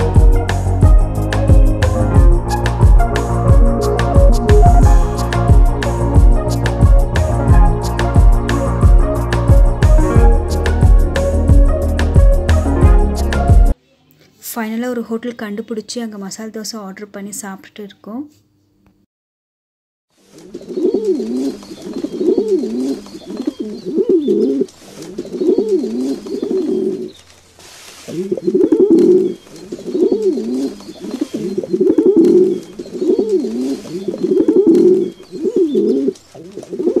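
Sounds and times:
pigeons cooing: 0.0 - 12.0, 20.5 - 27.2, 28.0 - 37.0.

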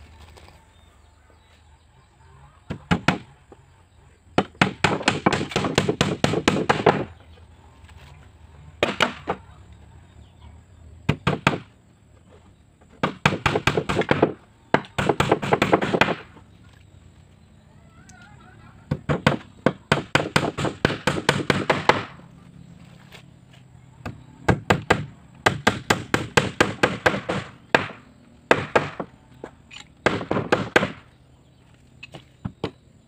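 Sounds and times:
hammer nailing wood: 2.7 - 3.3, 4.4 - 7.1, 8.8 - 9.4, 11.1 - 11.7, 13.0 - 16.3, 18.9 - 22.2, 24.0 - 29.1, 30.0 - 31.1.

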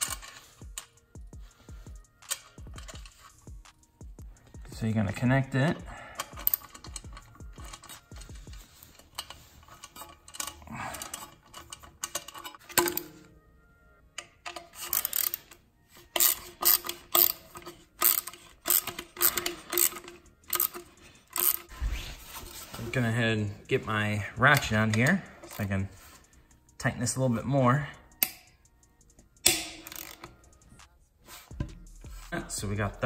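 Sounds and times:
metal handling: 0.0 - 3.6, 4.4 - 13.4, 14.1 - 26.3, 29.4 - 30.8
hand ratchet clicking: 0.0 - 4.6, 5.3 - 13.0, 14.2 - 21.7, 28.1 - 30.9.

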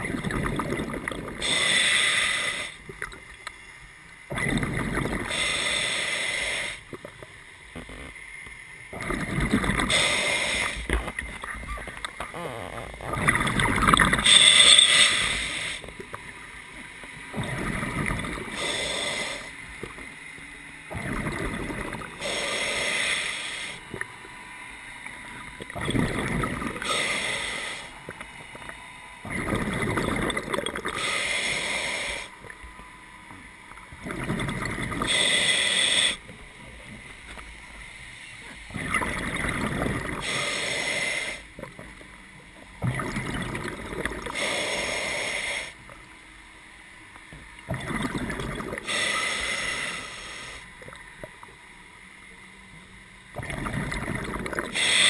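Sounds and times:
bubbling on exhale: 0.0 - 3.1, 4.3 - 7.1, 9.0 - 15.9, 20.9 - 23.9, 25.6 - 28.0, 29.2 - 32.3, 34.0 - 36.2, 38.7 - 42.0, 42.8 - 45.8, 47.7 - 51.0, 53.4 - 55.0
regulator hiss on inhale: 1.3 - 3.0, 5.2 - 7.1, 9.8 - 11.2, 14.1 - 16.1, 18.4 - 19.8, 21.9 - 24.0, 26.7 - 28.2, 30.8 - 32.5, 35.0 - 36.4, 40.1 - 41.6, 44.2 - 46.0, 48.8 - 50.9, 54.7 - 55.0.

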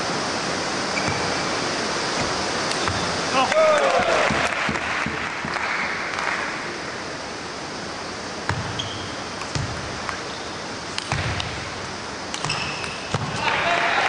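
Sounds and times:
footwork thuds: 1.0 - 3.3
crowd applause: 3.3 - 6.9, 13.4 - 14.0.

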